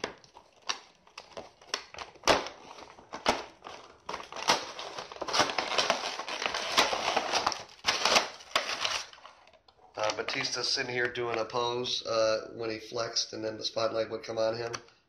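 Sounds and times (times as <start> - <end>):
packaging snaps and clicks: 0.0 - 10.6
plastic packaging crinkling: 0.0 - 10.8.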